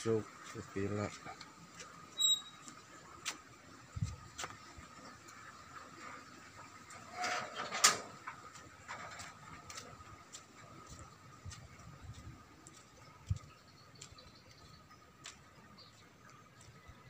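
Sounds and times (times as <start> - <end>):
footsteps on pavement: 0.3 - 2.0, 2.6 - 4.7, 8.5 - 17.0.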